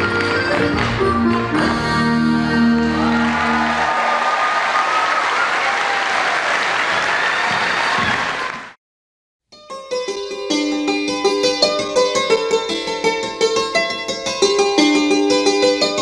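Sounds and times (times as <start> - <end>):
traditional dance music: 0.0 - 4.9
audience applause: 2.9 - 8.8.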